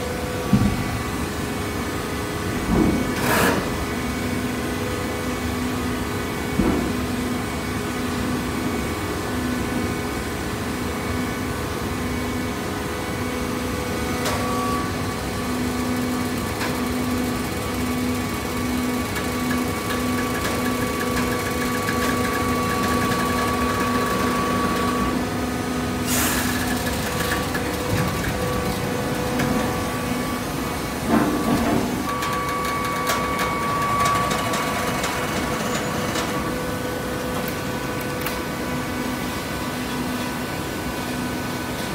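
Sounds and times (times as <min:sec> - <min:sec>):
baler pump motor humming: 0:14.3 - 0:39.3.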